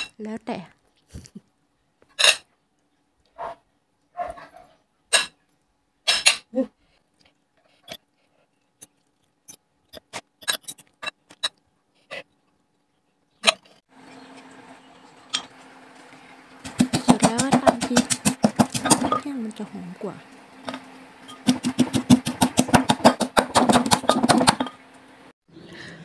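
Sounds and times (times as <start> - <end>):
cutlery scraping ceramic bowl: 9.9 - 11.6
pestle pounding in mortar: 16.6 - 19.3, 21.3 - 24.8.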